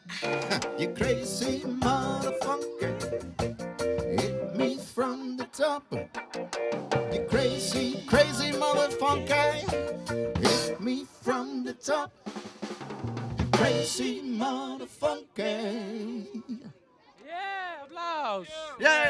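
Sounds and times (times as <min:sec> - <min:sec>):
drum kit: 0:00.0 - 0:04.8, 0:05.4 - 0:11.0, 0:12.2 - 0:14.2
man singing: 0:00.0 - 0:06.2, 0:07.1 - 0:12.3, 0:13.6 - 0:16.6, 0:18.6 - 0:19.0
electric guitars: 0:00.0 - 0:10.8
live band playing: 0:00.0 - 0:11.5, 0:12.1 - 0:14.2.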